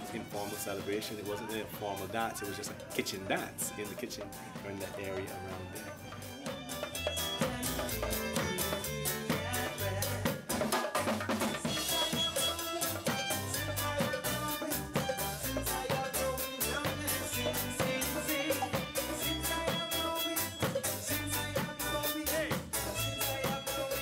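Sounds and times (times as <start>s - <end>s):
small band playing quick beat: 0.0s - 24.0s.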